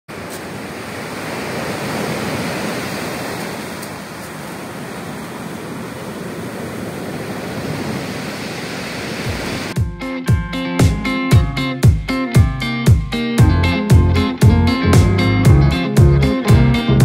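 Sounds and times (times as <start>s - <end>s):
waves breaking on pebble beach: 0.1s - 9.8s.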